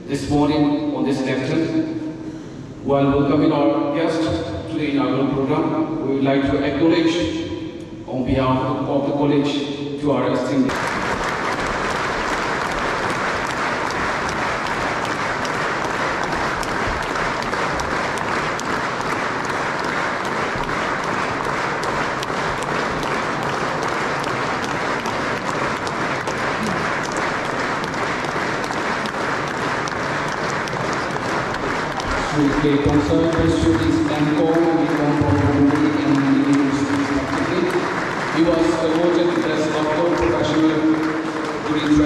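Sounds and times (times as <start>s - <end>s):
audience applauding: 10.7s - 42.0s.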